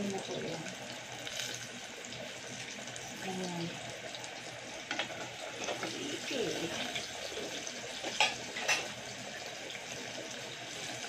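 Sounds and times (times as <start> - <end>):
deep-frying sizzle and crackle: 0.0 - 11.0.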